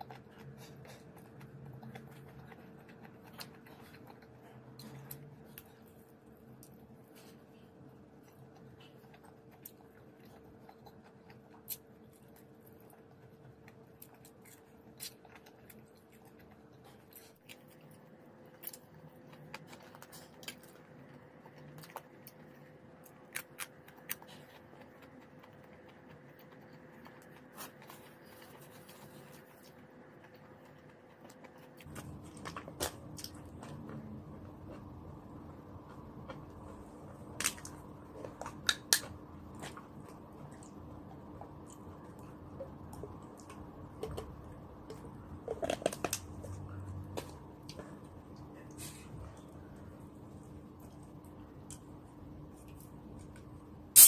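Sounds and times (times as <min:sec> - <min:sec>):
faint steady hum: 0:00.0 - 0:54.0
person eating clicks and smacks: 0:35.8 - 0:48.4.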